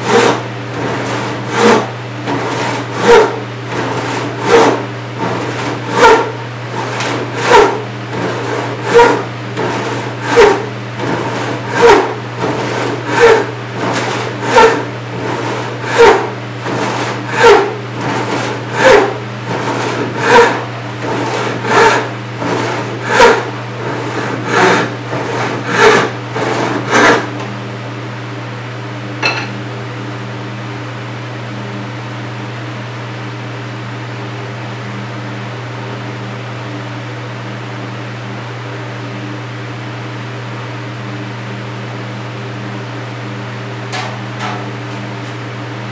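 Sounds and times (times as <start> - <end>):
hand saw sawing wood: 0.0 - 27.4.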